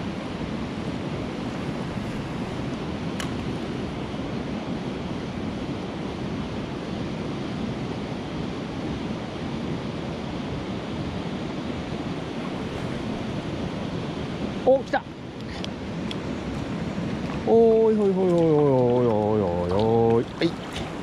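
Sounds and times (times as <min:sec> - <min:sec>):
mountain stream flowing over stones: 0:16.5 - 0:21.0.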